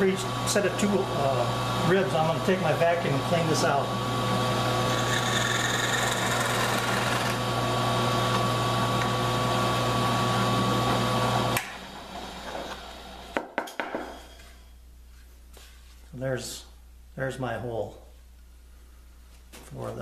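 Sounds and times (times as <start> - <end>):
drill press motor running: 3.1 - 13.4.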